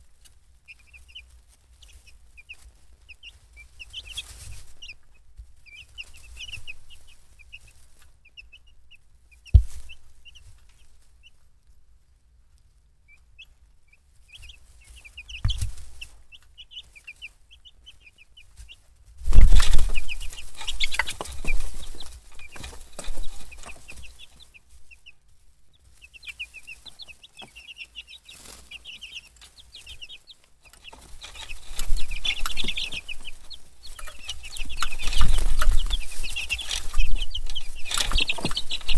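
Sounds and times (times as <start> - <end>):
chicks peeping: 0.0 - 38.9
close rustling and knocks: 3.6 - 8.2, 9.5 - 10.9, 14.4 - 16.8, 18.5 - 25.0, 25.8 - 38.9
sharp knock: 9.6 - 9.8
thump: 9.6 - 9.9.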